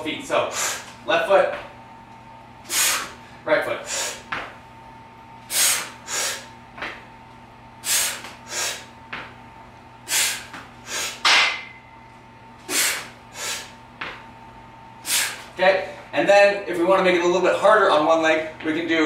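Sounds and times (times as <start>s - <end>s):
forceful breathing through mouth: 5.5s - 6.5s, 7.8s - 8.9s.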